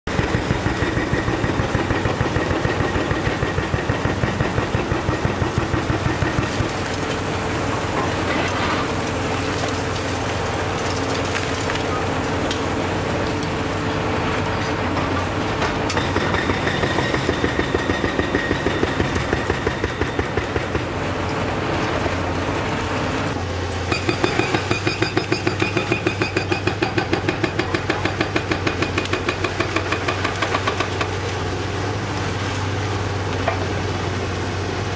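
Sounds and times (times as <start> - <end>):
hydraulic hammers pounding concrete: 0.1 - 7.0, 14.9 - 21.1, 23.9 - 31.3
diesel engines running: 0.1 - 34.9.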